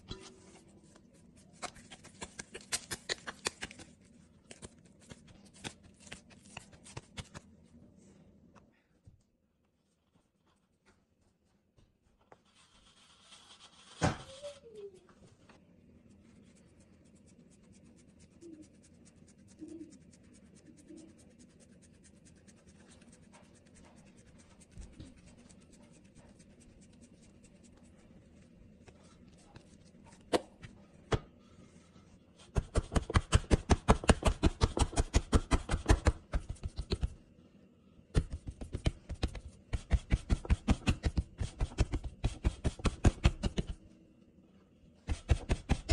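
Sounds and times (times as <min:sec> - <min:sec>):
hands rubbing dough: 0:00.0 - 0:08.0, 0:12.1 - 0:14.7, 0:15.8 - 0:37.3, 0:38.1 - 0:43.9, 0:45.0 - 0:45.9
fingers patting dough: 0:01.5 - 0:07.5, 0:32.4 - 0:37.2, 0:38.1 - 0:43.8, 0:45.0 - 0:45.9.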